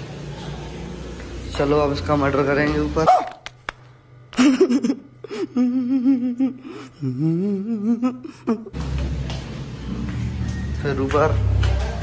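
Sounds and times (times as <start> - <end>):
man humming: 5.4 - 8.7.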